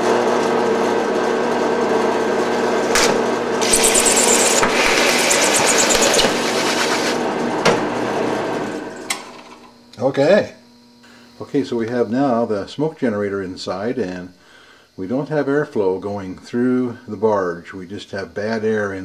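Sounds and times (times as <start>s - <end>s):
drill press motor running: 0.3s - 9.7s
drill bit scraping plastic: 3.6s - 7.2s.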